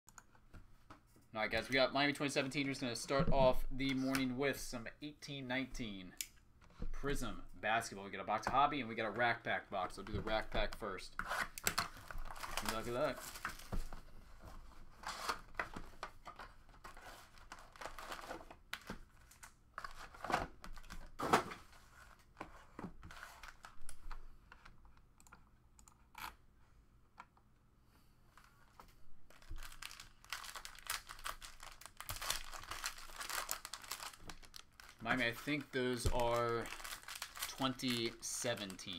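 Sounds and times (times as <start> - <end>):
plastic wrapping crinkling: 12.0 - 13.9, 29.3 - 38.9.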